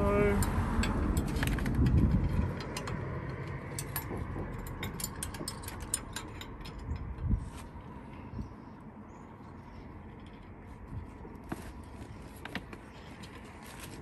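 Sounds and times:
metal parts clicking: 0.4s - 7.3s.

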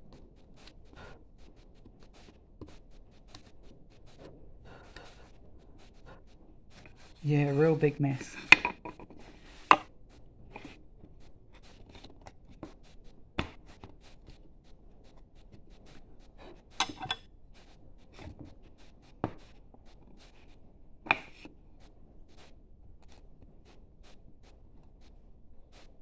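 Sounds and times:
chisel paring wood: 8.4s - 9.9s, 16.8s - 17.2s.

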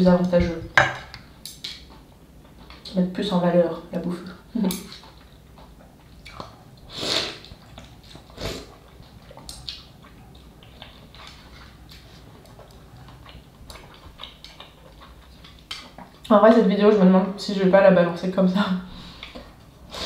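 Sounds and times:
soft chewing: 1.1s - 3.0s, 3.8s - 16.4s, 19.0s - 20.0s.

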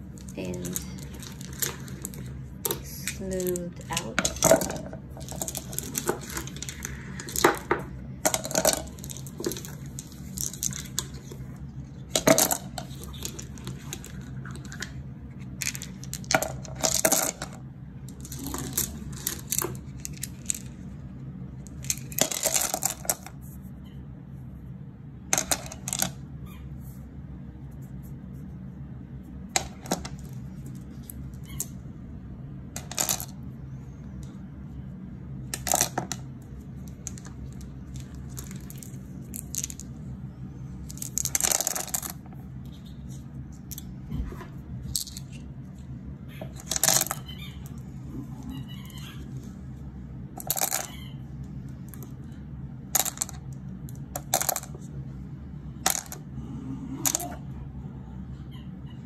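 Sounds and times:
stones clacking into tumbler barrel: 0.2s - 11.3s, 12.1s - 14.9s, 40.8s - 42.2s, 46.4s - 47.2s, 50.4s - 50.9s.

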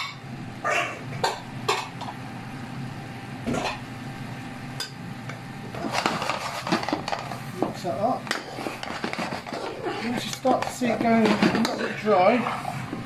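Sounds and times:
steady low hum: 0.0s - 13.0s
stirring and clattering in pan: 5.7s - 13.0s.

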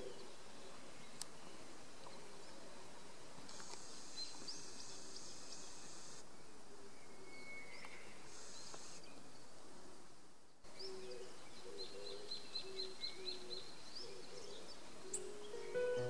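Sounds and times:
birds chirping: 10.7s - 16.0s.

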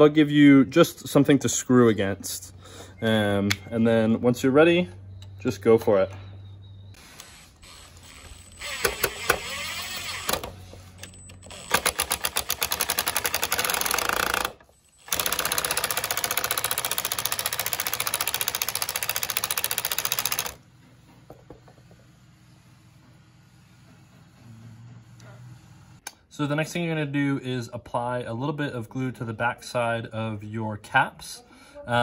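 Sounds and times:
impact driver motor spinning: 7.2s - 10.7s, 11.4s - 20.6s.

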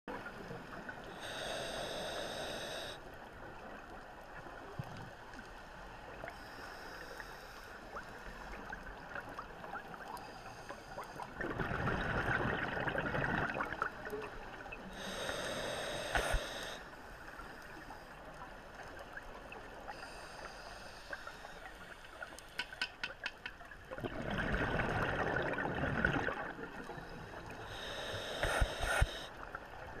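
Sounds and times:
regulator inhale hissing: 1.1s - 3.0s, 6.3s - 8.5s, 14.9s - 17.9s, 19.9s - 22.8s, 26.9s - 29.4s
exhaled bubbles rushing: 11.3s - 14.0s, 23.9s - 26.8s.

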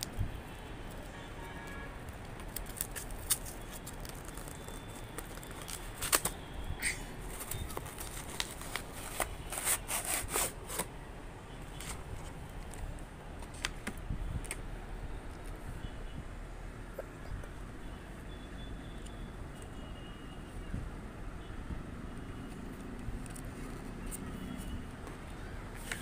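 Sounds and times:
cardboard and paper crinkling: 1.7s - 6.5s, 7.2s - 10.9s, 22.5s - 26.0s.

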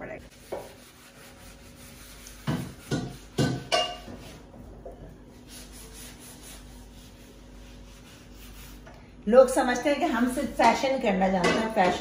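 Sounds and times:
sponge rubbing cabinet door: 0.3s - 3.5s.

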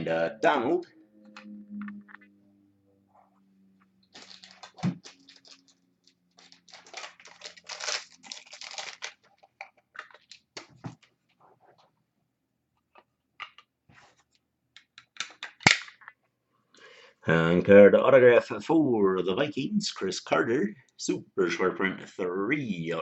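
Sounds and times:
crinkly plastic rustling: 4.1s - 11.3s.

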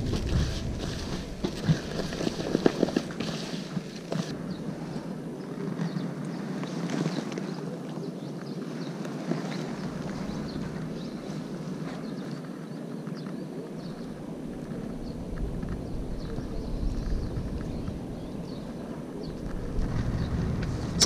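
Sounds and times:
wind buffeting microphone: 0.0s - 7.6s, 9.6s - 21.0s.

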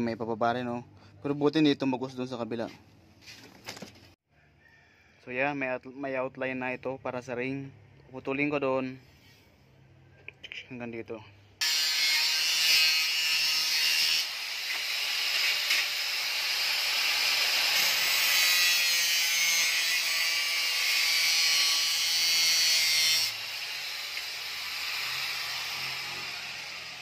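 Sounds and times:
angle grinder cutting metal: 11.6s - 27.0s.

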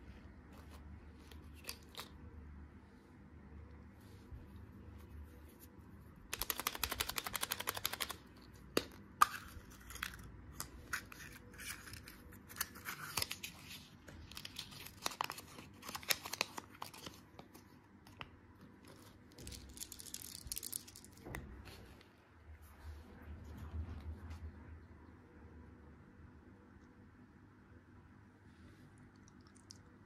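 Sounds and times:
paper packet tearing and crinkling: 11.0s - 17.2s.

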